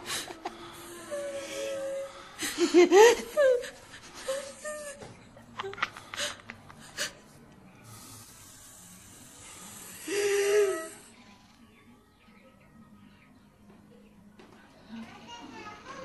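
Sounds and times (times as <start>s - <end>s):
soft breathy hiss: 5.8s - 11.5s.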